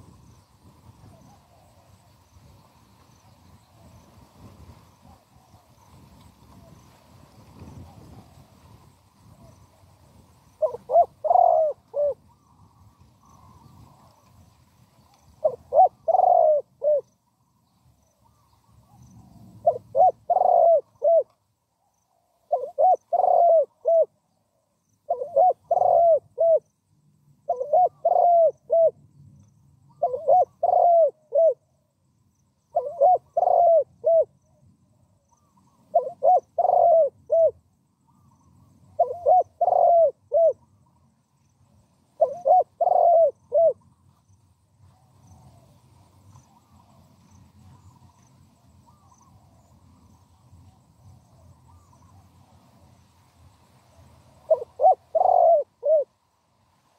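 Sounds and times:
dove cooing: 0:10.6 - 0:14.4, 0:15.2 - 0:17.1, 0:18.2 - 0:21.4, 0:22.5 - 0:24.2, 0:25.1 - 0:26.7, 0:27.4 - 0:29.0, 0:29.9 - 0:31.7, 0:32.7 - 0:34.4, 0:35.3 - 0:40.8, 0:42.2 - 0:44.0, 0:51.0 - 0:52.2, 0:54.4 - 0:56.2.

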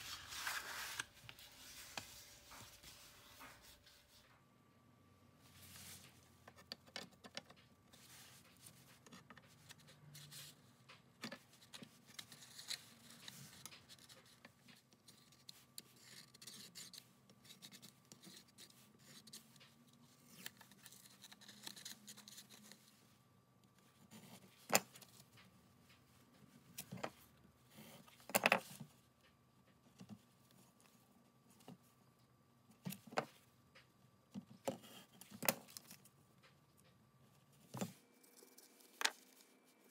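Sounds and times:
paper rustling: 0:00.0 - 0:04.2.

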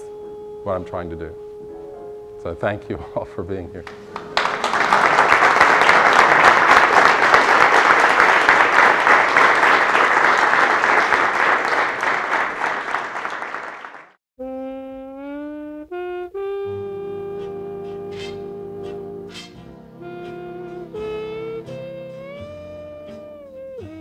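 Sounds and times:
melody of sliding held notes: 0:00.0 - 0:04.8, 0:14.6 - 0:24.0
audience applauding: 0:03.8 - 0:14.2.

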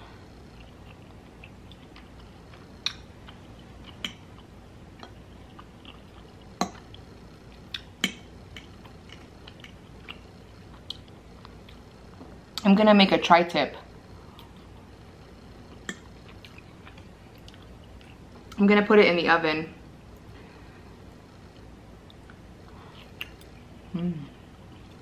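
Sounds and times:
person chewing food: 0:00.2 - 0:12.6, 0:15.6 - 0:18.6, 0:21.0 - 0:23.6.

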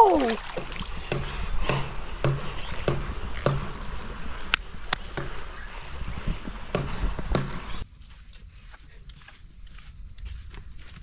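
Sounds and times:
splashing thumps and clicks: 0:00.0 - 0:03.9
stream running over gravel: 0:00.0 - 0:08.5.

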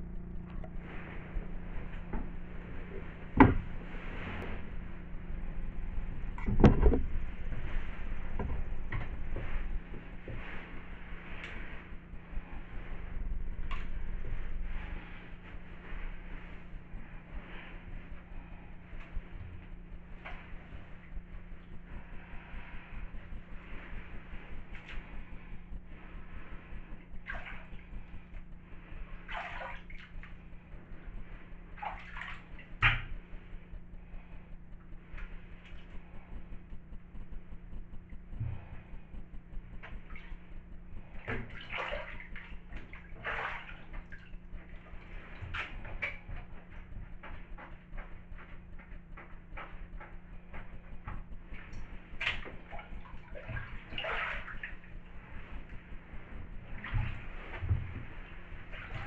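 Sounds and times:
dull thud: 0:03.3 - 0:03.8
bathwater splashing: 0:26.1 - 0:28.2, 0:29.2 - 0:30.4, 0:31.6 - 0:33.2, 0:41.0 - 0:48.5, 0:51.5 - 0:59.0.

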